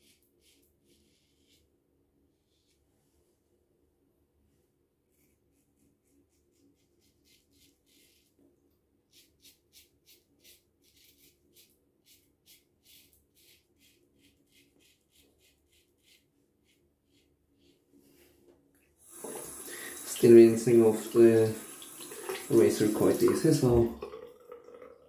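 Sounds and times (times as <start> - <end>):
razor scraping through stubble: 9.1 - 17.8.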